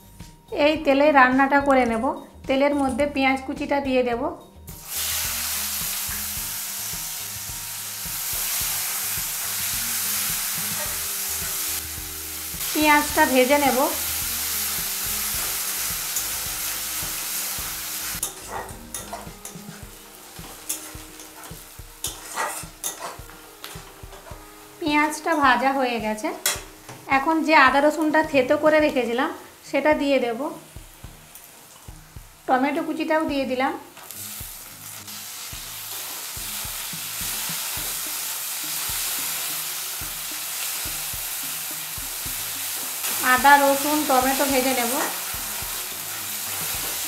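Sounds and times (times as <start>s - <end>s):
onions sizzling in oil: 4.7s - 47.0s
metal spatula scraping a pan: 20.4s - 23.3s.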